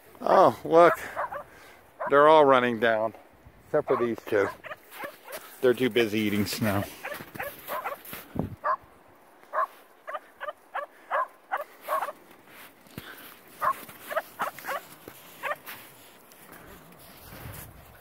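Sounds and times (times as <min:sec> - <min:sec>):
puppies yipping: 0:01.2 - 0:02.1, 0:07.0 - 0:08.0, 0:09.6 - 0:12.2, 0:13.6 - 0:15.6.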